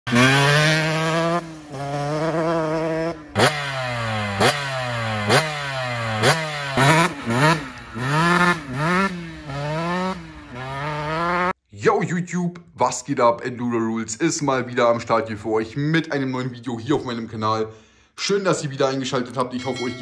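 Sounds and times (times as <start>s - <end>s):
two-stroke engine revving: 0.1s - 11.6s.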